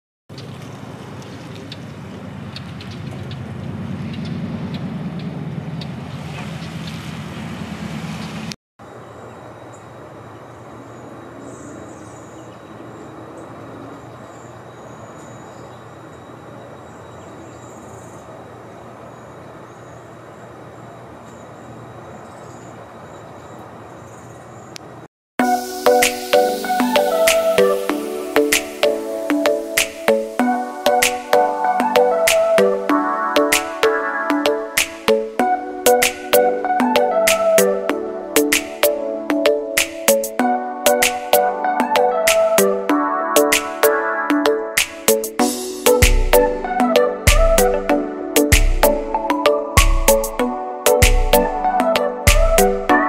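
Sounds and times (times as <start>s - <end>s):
low traffic rumble: 0.3s - 25.1s.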